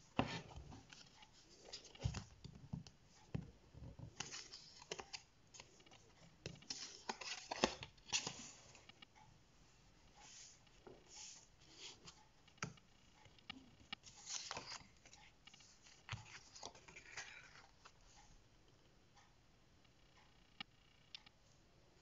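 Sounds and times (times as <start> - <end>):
paper rustling and sliding: 6.6 - 8.8, 14.0 - 17.7.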